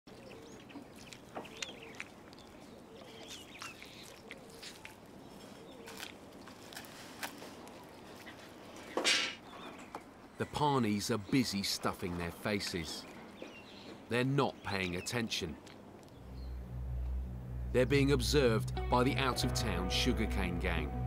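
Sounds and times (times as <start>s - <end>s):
bird chirps: 0.1s - 6.0s.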